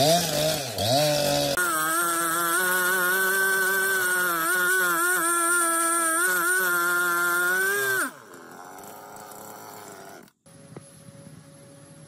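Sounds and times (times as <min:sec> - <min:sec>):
chainsaw cutting log: 0:00.0 - 0:10.4.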